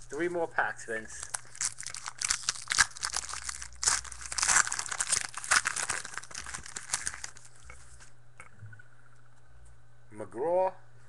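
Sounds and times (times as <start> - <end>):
card pack wrapper tearing: 1.2 - 7.6.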